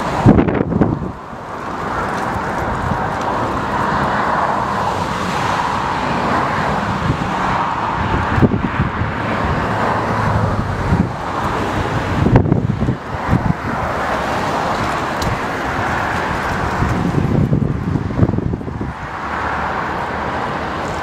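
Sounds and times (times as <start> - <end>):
jet engines rushing: 0.0 - 21.0
wind buffeting microphone: 0.0 - 21.0.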